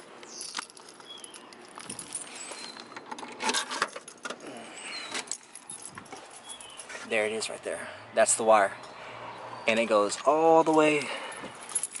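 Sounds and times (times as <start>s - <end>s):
light jingling and clicking: 0.2s - 7.5s, 10.0s - 12.0s.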